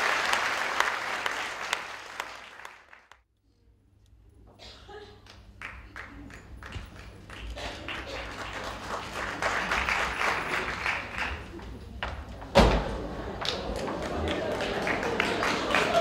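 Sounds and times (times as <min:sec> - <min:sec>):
audience applauding: 0:00.0 - 0:03.2, 0:05.6 - 0:11.6, 0:13.2 - 0:16.0.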